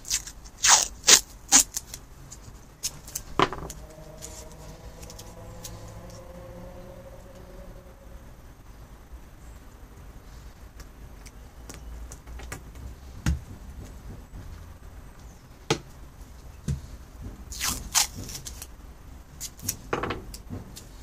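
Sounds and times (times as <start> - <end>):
tape ripping from roll: 0.0 - 3.4, 17.5 - 18.7.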